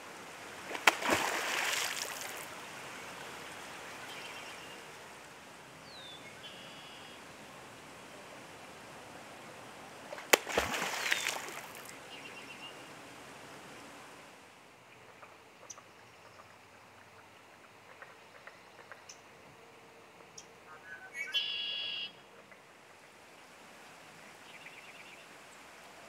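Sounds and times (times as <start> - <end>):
water splashing: 0.5 - 4.2, 10.1 - 12.0
beaver tail slapping water: 0.6 - 2.5, 10.1 - 12.0
faint water ticks: 15.0 - 19.3
bird calling high notes: 20.8 - 22.2.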